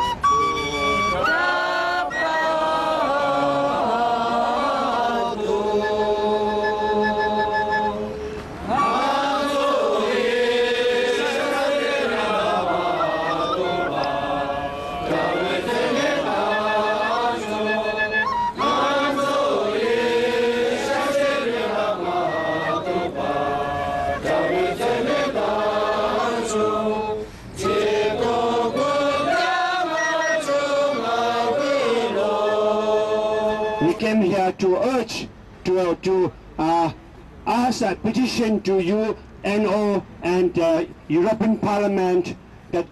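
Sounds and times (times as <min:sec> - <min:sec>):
voices chanting: 0:00.7 - 0:34.0.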